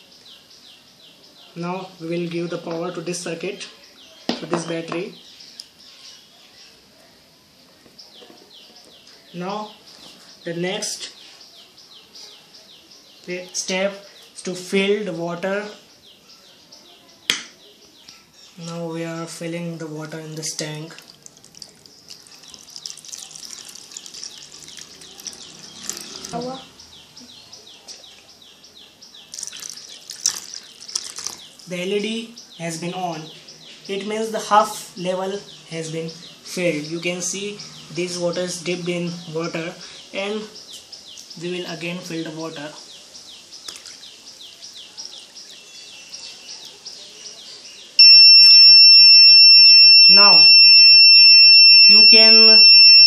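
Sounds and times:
bird chirping: 0.0 - 18.9, 19.5 - 53.0
water pouring and splashing: 20.6 - 26.4, 29.3 - 31.7, 43.6 - 44.2
high downward-sliding chirps: 48.0 - 53.0.

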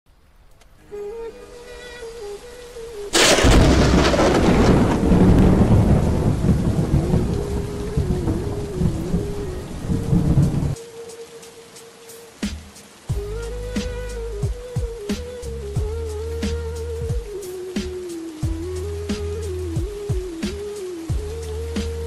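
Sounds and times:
heavy rain pouring: 0.1 - 22.0
thunder rumble: 3.0 - 10.8
thunderclap: 3.1 - 10.8.

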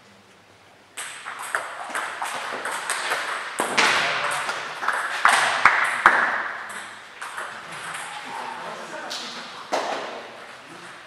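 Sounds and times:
ping pong ball clicking: 1.0 - 8.1.

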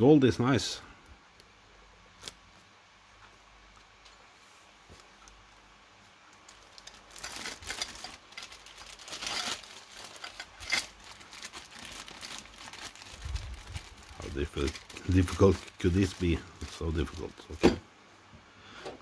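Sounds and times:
plastic bag crinkling: 6.3 - 17.7.

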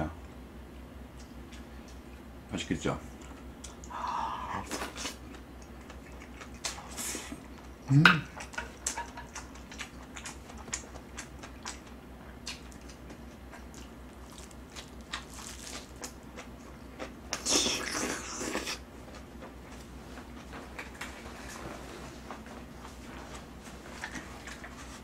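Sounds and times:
close chewing with mouth smacks: 3.2 - 4.0, 4.6 - 22.5, 23.8 - 25.0
breathy noise: 3.9 - 4.7
person humming: 3.9 - 4.7.

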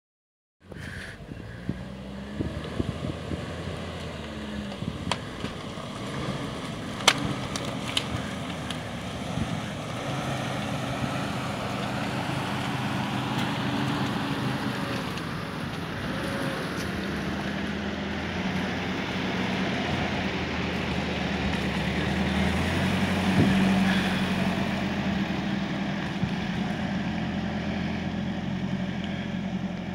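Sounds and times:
vehicle engines crawling: 0.6 - 29.9.

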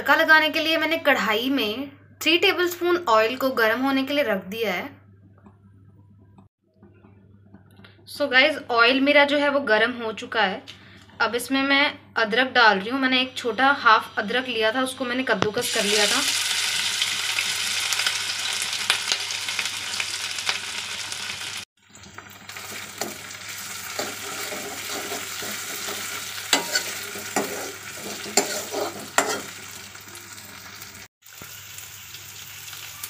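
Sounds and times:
ginger sizzling in hot oil: 15.6 - 33.0
ladle scraping a pan: 22.7 - 29.9.

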